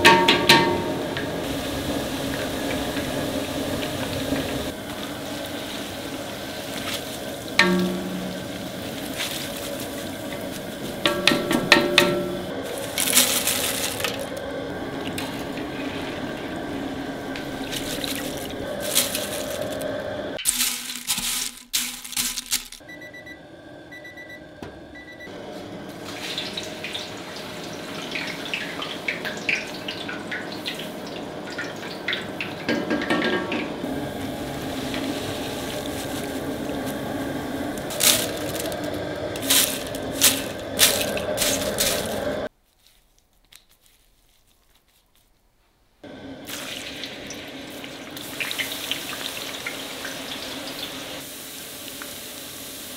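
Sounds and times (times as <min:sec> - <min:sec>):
skimmer clinking against pots: 0:00.0 - 0:03.2, 0:07.5 - 0:14.4
chips sizzling in hot oil: 0:00.0 - 0:22.8, 0:25.9 - 0:33.1, 0:33.8 - 0:42.5, 0:46.0 - 0:52.9.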